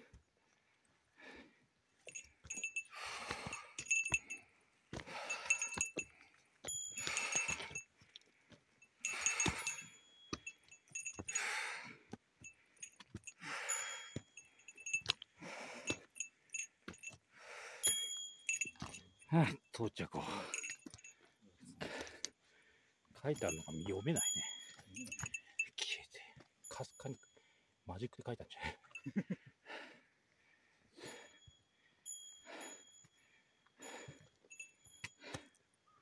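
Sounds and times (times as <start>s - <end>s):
person breathing hard: 1.1s - 18.7s, 20.2s - 21.1s, 21.8s - 23.0s, 29.6s - 31.6s, 32.4s - 35.6s
small metal bell tinkling: 2.0s - 4.5s, 5.1s - 8.0s, 8.8s - 11.6s, 12.4s - 17.2s, 17.8s - 21.3s, 23.2s - 29.3s, 31.1s - 35.3s.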